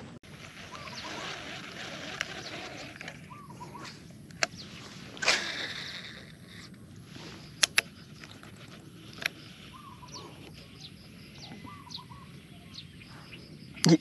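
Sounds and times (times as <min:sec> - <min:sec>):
birds chirping: 0:00.0 - 0:14.0
sharp clicks: 0:07.6 - 0:09.4.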